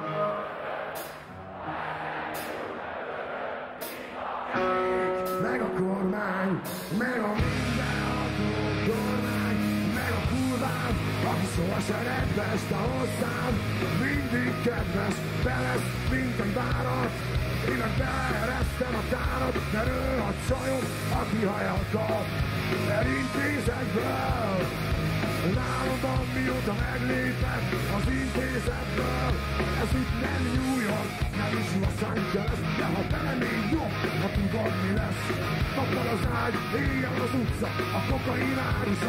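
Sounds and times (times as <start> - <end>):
heavy drums: 0.6 - 5.7, 6.6 - 39.0
live rock band playing: 3.8 - 39.0.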